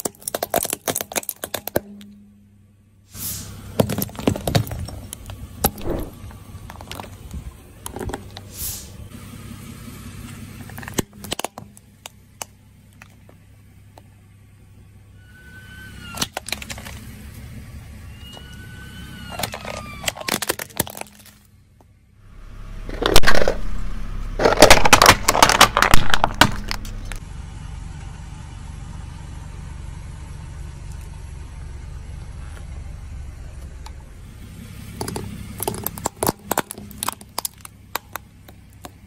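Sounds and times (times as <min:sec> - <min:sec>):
tyre crushing small objects: 0:00.0 - 0:02.2, 0:03.8 - 0:08.5, 0:10.6 - 0:14.1, 0:16.2 - 0:17.1, 0:19.3 - 0:21.9, 0:22.7 - 0:27.2, 0:35.0 - 0:39.0
car low rumble: 0:00.0 - 0:39.0.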